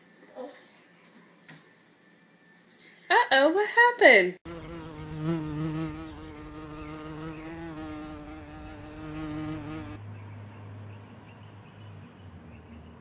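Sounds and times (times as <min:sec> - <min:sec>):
flying insect buzzing: 0:04.5 - 0:10.0.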